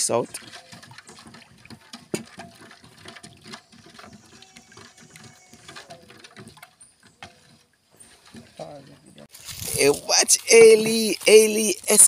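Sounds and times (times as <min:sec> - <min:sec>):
spoon stirring in metal bowl: 0:00.2 - 0:09.0.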